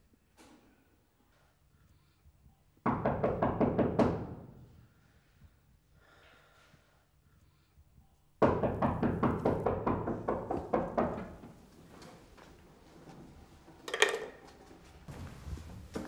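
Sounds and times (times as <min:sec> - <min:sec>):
rapid pounding on a door: 0:02.8 - 0:04.5, 0:08.4 - 0:11.6.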